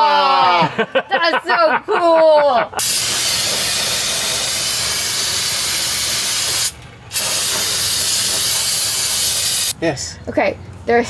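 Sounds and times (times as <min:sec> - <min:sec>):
aerosol can spraying: 0:02.8 - 0:09.8.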